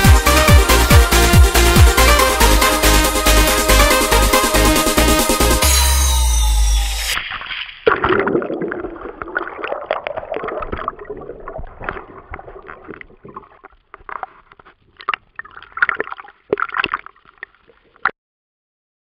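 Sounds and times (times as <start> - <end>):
water gurgling and sloshing: 7.2 - 18.1
underwater bubbles: 7.8 - 18.1.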